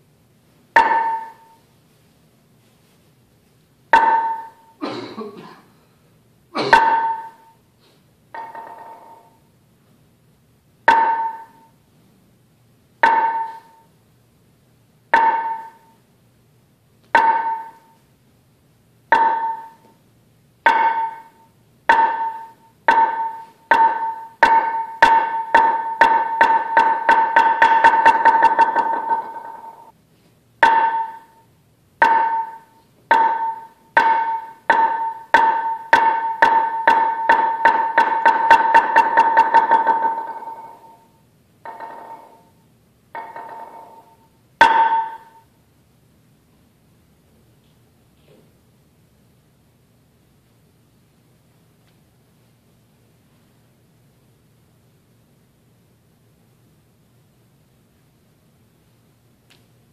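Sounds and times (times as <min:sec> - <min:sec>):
mallet striking wooden board: 0:00.7 - 0:01.6, 0:03.9 - 0:04.7, 0:06.6 - 0:07.5, 0:08.3 - 0:09.4, 0:10.8 - 0:11.7, 0:13.0 - 0:13.8, 0:15.1 - 0:16.0, 0:17.1 - 0:18.0, 0:19.1 - 0:20.0, 0:20.6 - 0:29.9, 0:30.6 - 0:31.4, 0:32.0 - 0:42.5, 0:43.1 - 0:45.4.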